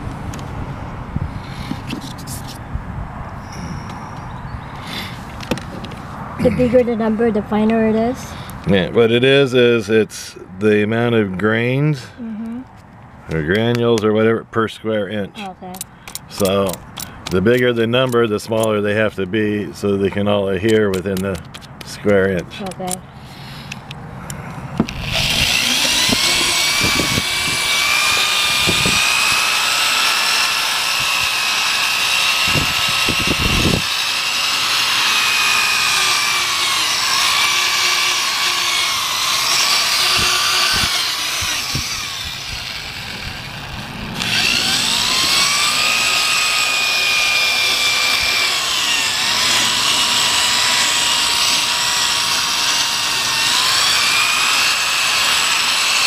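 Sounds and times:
sandpaper rubbing on plastic: 1.4 - 2.6
power drill motor whine: 24.8 - 56.0.

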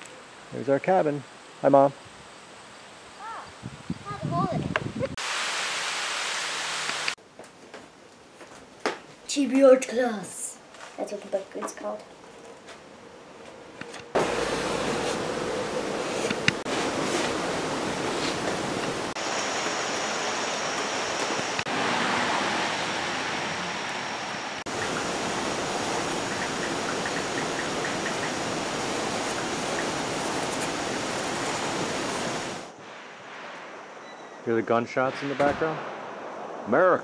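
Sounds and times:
steady rushing noise: 14.1 - 37.0.

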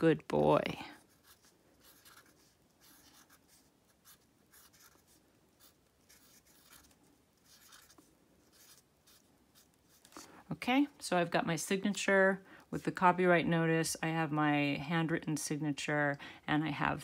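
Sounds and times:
marker writing on canvas: 1.0 - 10.2.

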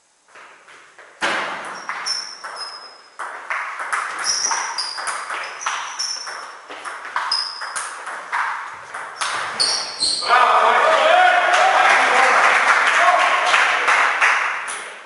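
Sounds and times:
ball bouncing on table: 1.2 - 9.6
table tennis ball hits: 1.2 - 10.0.

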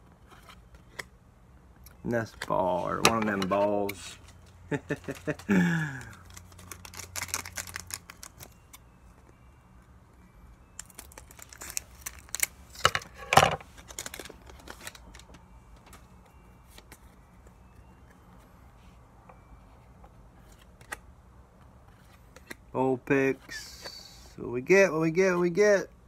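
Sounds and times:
cards being handled: 2.2 - 8.8
foil wrapper tearing and crinkling: 6.2 - 8.6, 10.8 - 12.9, 13.8 - 15.2.

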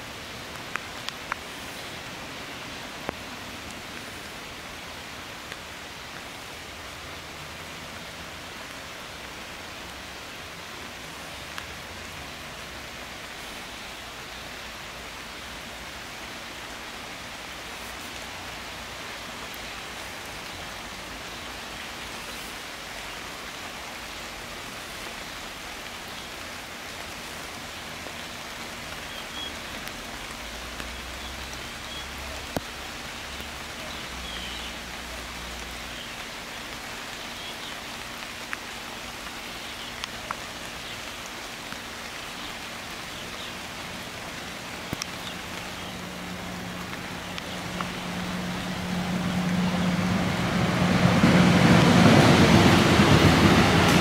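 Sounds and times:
rain falling on leaves: 0.0 - 54.0.

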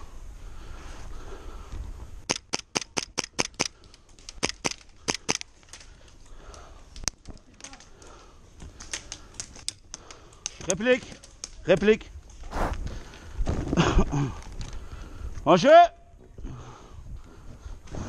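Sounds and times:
airsoft gun cracks: 2.2 - 5.8.

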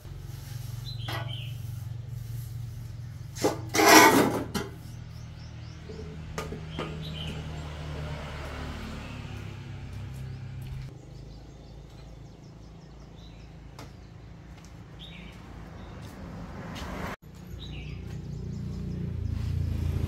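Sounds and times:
bird chirping: 0.8 - 1.8, 4.8 - 7.8, 9.9 - 16.1, 17.3 - 19.9
steel mould clattering on concrete: 3.4 - 4.8.

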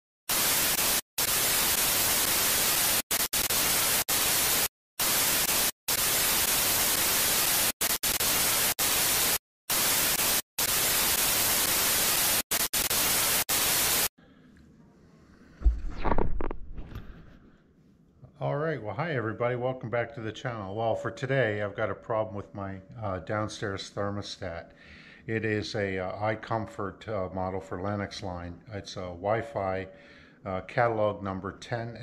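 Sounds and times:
loud static hiss: 0.3 - 14.1.

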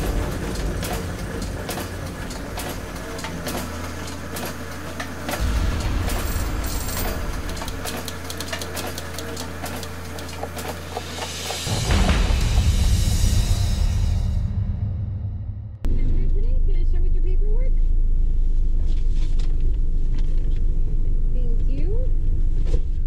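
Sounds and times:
machinery clicks and clanks: 0.0 - 12.8
low mechanical hum: 0.0 - 14.6, 15.8 - 23.0
deep rumble: 5.4 - 9.3, 11.6 - 23.0.

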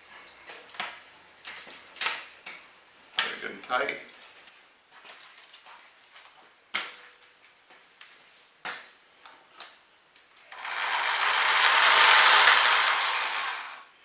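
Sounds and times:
reciprocating saw running: 10.5 - 13.9.

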